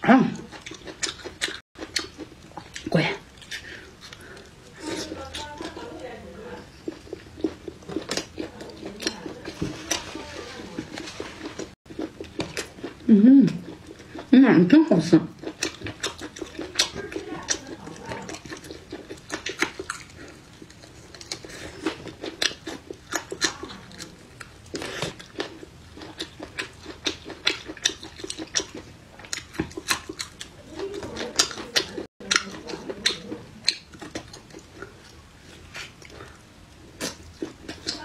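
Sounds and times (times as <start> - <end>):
crisp chewing crunches: 15.4 - 38.0.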